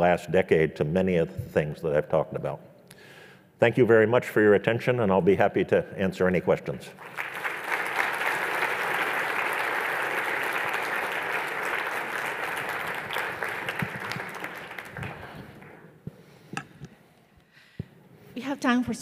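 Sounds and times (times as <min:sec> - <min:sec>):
audience applauding: 0:07.0 - 0:15.8.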